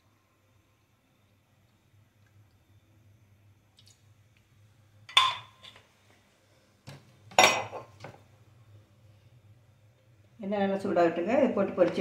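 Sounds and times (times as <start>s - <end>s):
metal kitchenware clanking: 5.1s - 5.7s, 7.3s - 8.0s.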